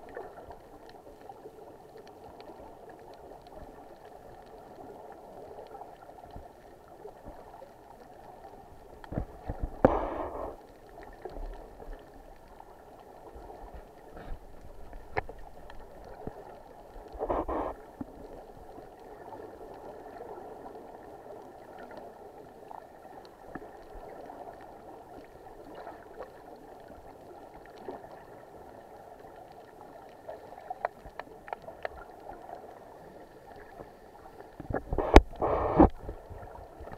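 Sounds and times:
faint clicks: 0:00.0 - 0:18.8, 0:29.2 - 0:36.1
underwater hiss: 0:09.4 - 0:10.7, 0:17.0 - 0:18.1, 0:32.7 - 0:36.8.

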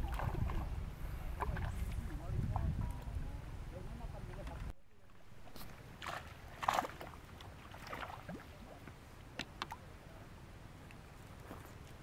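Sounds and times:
fish splashing in water: 0:06.0 - 0:08.7.

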